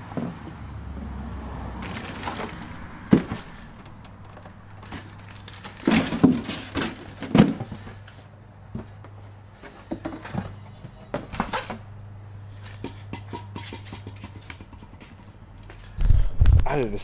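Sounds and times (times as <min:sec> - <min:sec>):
low steady hum: 0:00.0 - 0:17.0
hard objects knocking and clattering: 0:01.8 - 0:07.9, 0:12.8 - 0:15.3.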